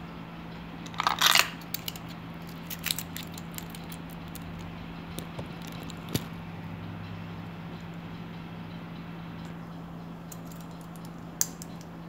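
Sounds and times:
steady low hum: 0.0s - 12.0s
metal tool clicks: 0.9s - 6.3s, 10.3s - 11.9s
metallic scraping rattle: 0.9s - 6.3s.

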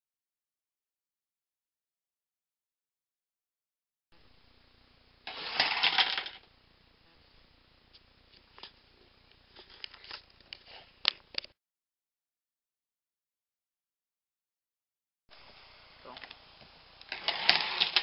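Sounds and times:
toy tractor rattling on board: 5.3s - 6.4s, 17.1s - 18.0s.

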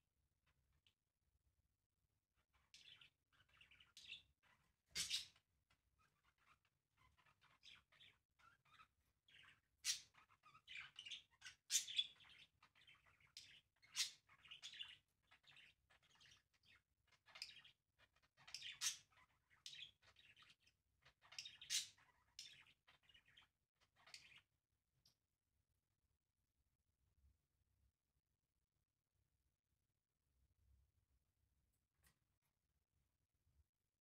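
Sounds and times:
budgerigars chirping: 2.7s - 5.4s, 6.0s - 24.4s.

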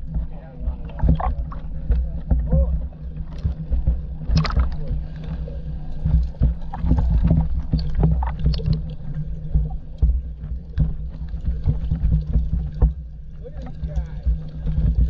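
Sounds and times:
steady low rumble: 0.0s - 15.0s
river water splashing: 3.2s - 5.4s.

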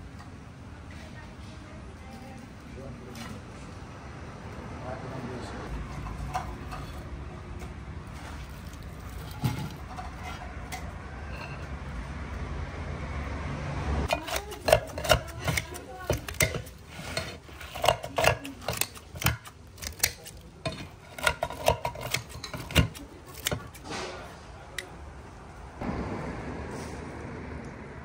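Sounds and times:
dishes and cutlery clinking: 14.1s - 23.8s
steady low rumble: 25.1s - 28.0s.

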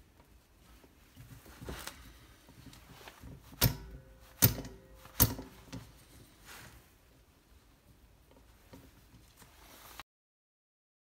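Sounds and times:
quiet handling of metal part: 0.2s - 6.8s
short metallic ring: 3.6s - 5.7s
hand tools knocking on screws: 3.6s - 5.8s.

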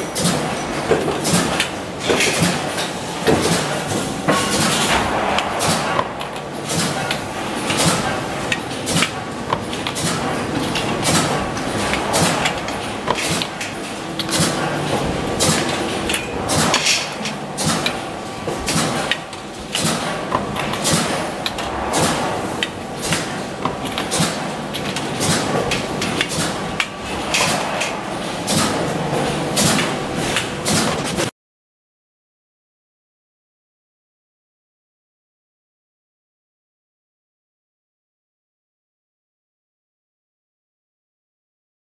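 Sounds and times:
factory machine noise: 0.0s - 31.3s
metallic clanks of wire racks: 0.0s - 31.3s.

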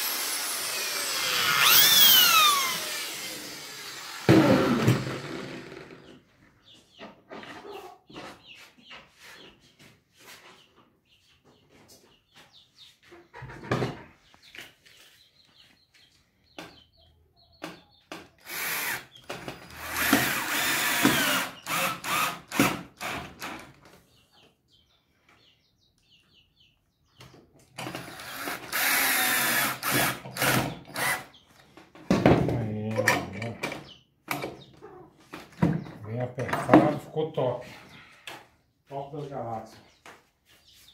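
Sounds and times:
cordless drill into wood: 0.0s - 6.2s, 18.4s - 23.8s, 27.8s - 31.4s.

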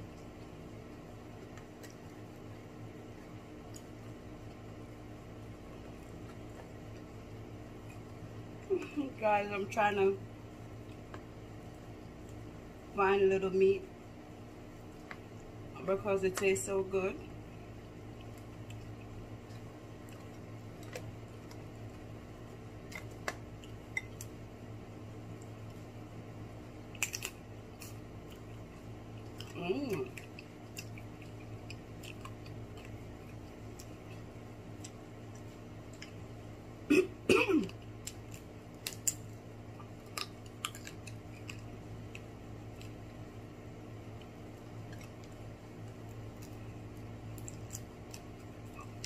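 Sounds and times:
steady low hum: 0.0s - 49.0s
lobster shell clicking: 27.0s - 27.4s, 39.9s - 43.0s
person coughing: 36.9s - 37.7s.

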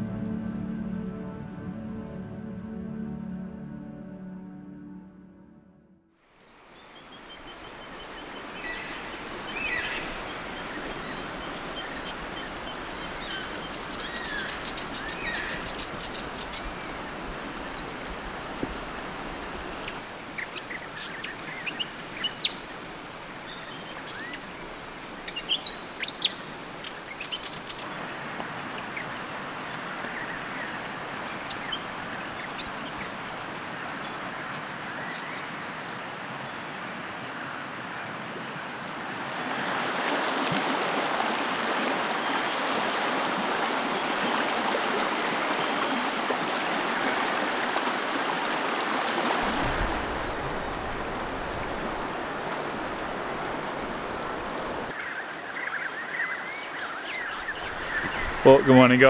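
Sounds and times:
rain: 6.2s - 59.0s
river water rushing: 6.3s - 59.0s
birds chirping and calling: 53.3s - 59.0s.

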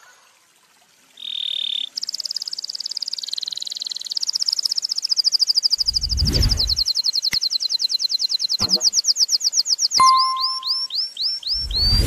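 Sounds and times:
canary singing: 6.7s - 12.0s.

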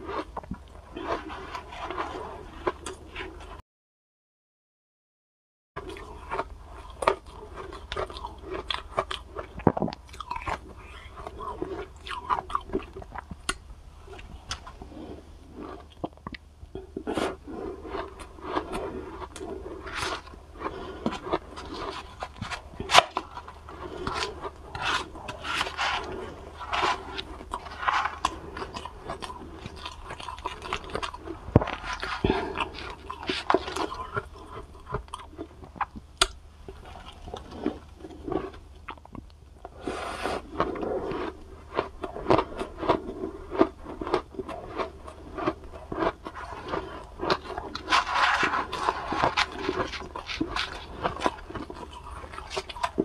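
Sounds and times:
crunching and chewing: 0.0s - 3.6s, 5.8s - 53.0s.

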